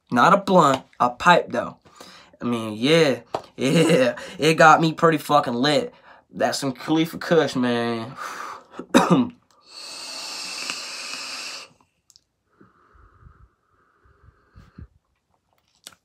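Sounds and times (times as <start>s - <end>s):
person exhaling smoke: 9.6s - 11.9s
person inhaling smoke: 9.6s - 15.0s.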